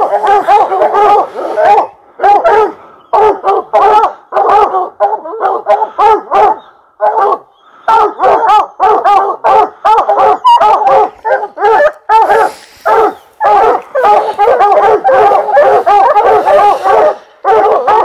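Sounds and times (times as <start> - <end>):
dogs barking hard: 0.0 - 18.0.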